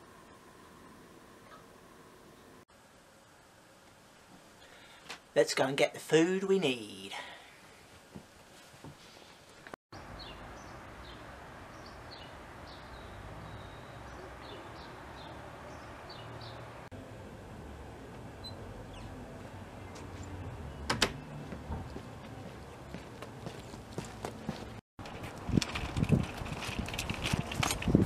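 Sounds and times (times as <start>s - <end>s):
birds chirping: 10.0s - 16.9s, 18.3s - 24.8s.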